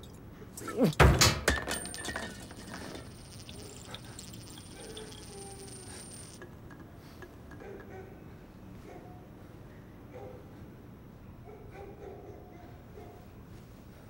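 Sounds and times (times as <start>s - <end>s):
small clattering rattles: 0.8s - 8.0s
faint high steady tone: 1.7s - 6.4s.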